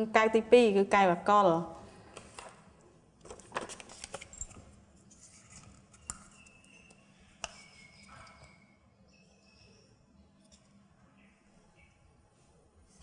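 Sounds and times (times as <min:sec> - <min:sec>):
paper rustle: 0:03.2 - 0:06.0.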